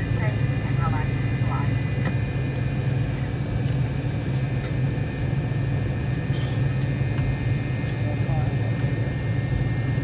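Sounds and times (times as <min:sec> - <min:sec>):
airliner cabin hum: 0:00.0 - 0:10.0
high steady whines: 0:00.0 - 0:10.0.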